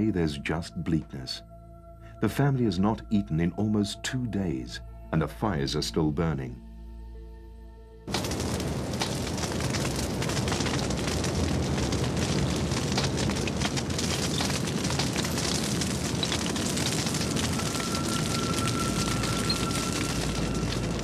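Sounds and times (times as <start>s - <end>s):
fire crackling: 8.0s - 21.0s
rushing flames: 8.1s - 21.0s
thin high tone: 17.2s - 21.0s.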